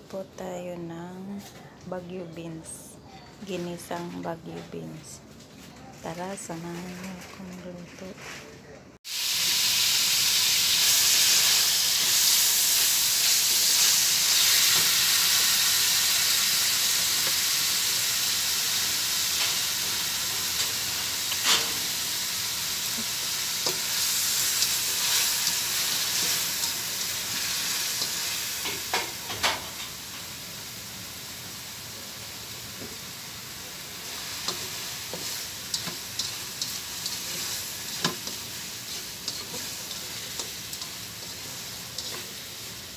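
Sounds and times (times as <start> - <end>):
food sizzling in a wok: 9.0 - 42.9
spatula scraping and clicking on wok: 10.8 - 15.7, 16.9 - 18.2, 22.9 - 30.0, 34.0 - 42.9.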